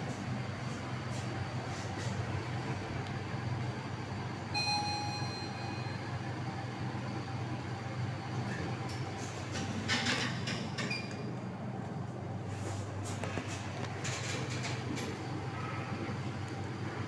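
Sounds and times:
low hum inside elevator: 0.0 - 17.0
elevator chime ding: 4.5 - 6.3.

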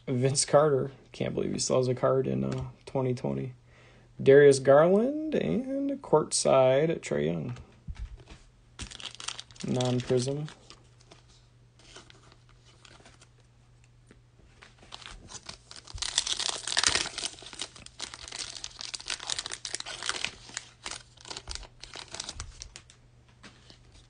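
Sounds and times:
foil wrapper tearing and crinkling: 8.8 - 10.8, 14.8 - 23.0.

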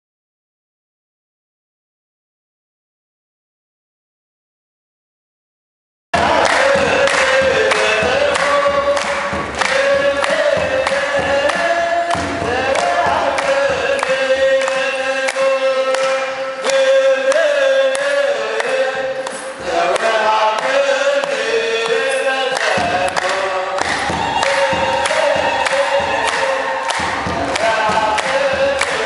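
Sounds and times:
congregation singing a hymn: 6.2 - 29.0
hand clapping: 6.2 - 29.0
priest singing into a microphone: 6.2 - 29.0.

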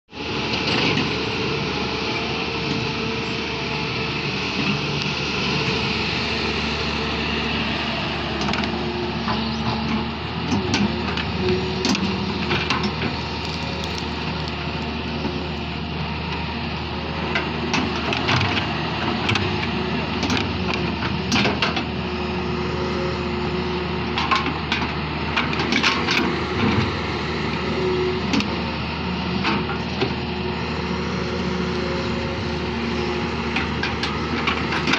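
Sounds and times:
excavator diesel engine running: 0.1 - 34.9
excavator bucket digging soil: 8.4 - 16.5.

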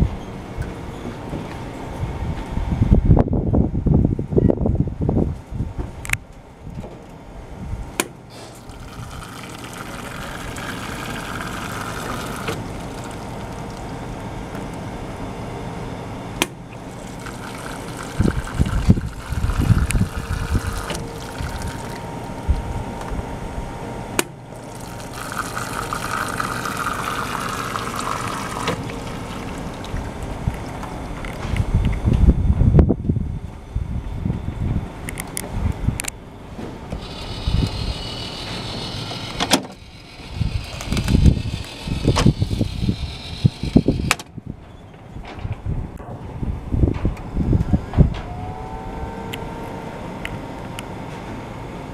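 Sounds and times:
hot water pouring from nozzle: 8.3 - 14.0, 16.8 - 22.3, 24.5 - 30.8, 37.0 - 44.1
tea trickling into drip tray: 8.6 - 14.0, 17.0 - 22.1, 24.6 - 30.8.

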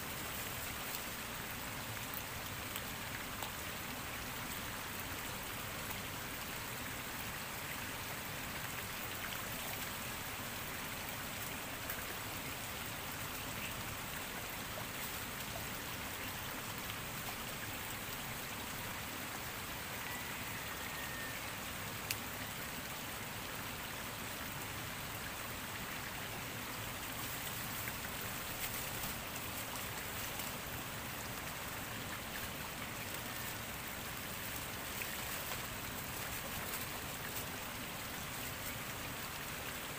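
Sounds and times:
stream rushing: 0.0 - 39.9.

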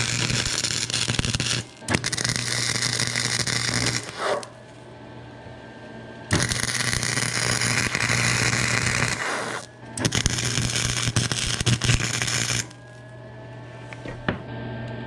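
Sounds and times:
welder arc crackling and buzzing: 0.0 - 5.0, 6.2 - 13.2.

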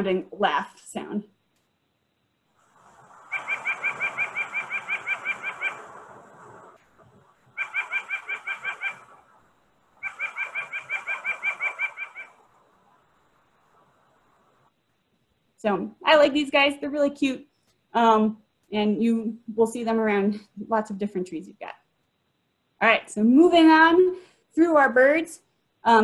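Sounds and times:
nuthatch laughing call: 3.3 - 5.8, 7.6 - 9.2, 10.0 - 12.4.

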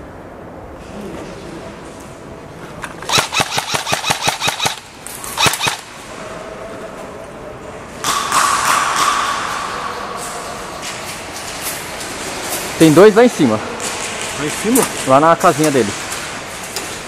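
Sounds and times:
airsoft rifle shots: 3.0 - 6.0.

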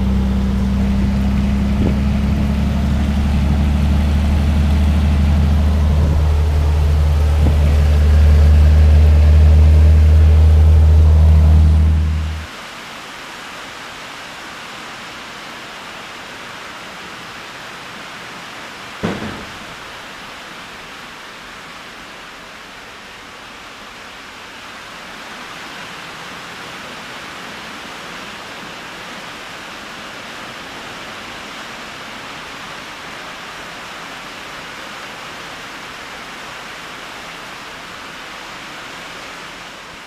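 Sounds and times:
rain on a metal building: 0.0 - 40.0
sharp knock: 19.0 - 19.8.

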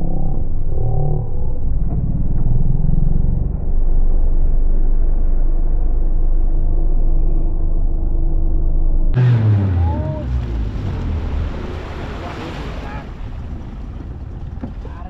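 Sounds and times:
small boat motor running: 9.2 - 14.9.

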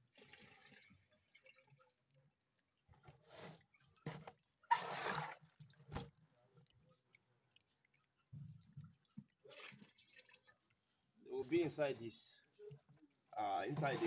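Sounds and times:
water splashes: 4.7 - 10.8.

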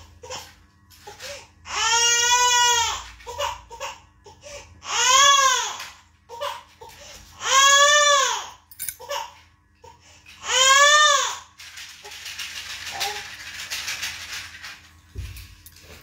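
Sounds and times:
infant crying: 0.0 - 11.5.

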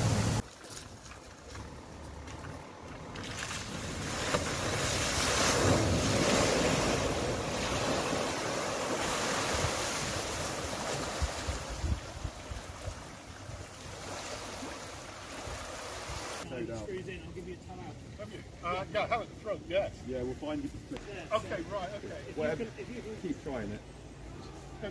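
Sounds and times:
car splashing through water: 0.0 - 11.6
wind on microphone: 3.7 - 14.7.

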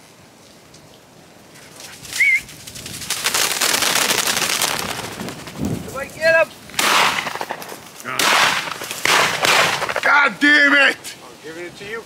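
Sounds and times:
pheasant wings whirring: 1.7 - 5.8.

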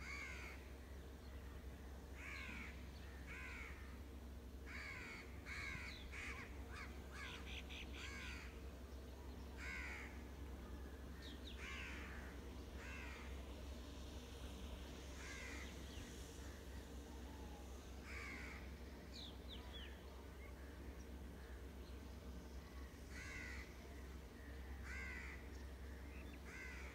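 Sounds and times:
low hum: 0.0 - 26.9
bird calling: 4.7 - 8.7.

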